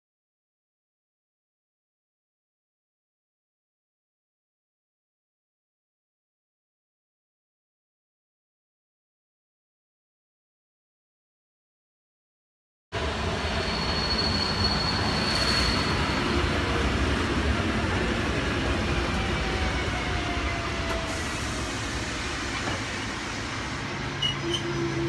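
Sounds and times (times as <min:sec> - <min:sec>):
train wheels rumbling: 0:13.0 - 0:25.0.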